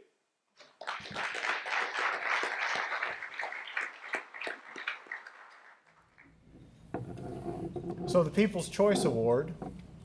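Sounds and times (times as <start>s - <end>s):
audience applause: 0.7s - 6.3s.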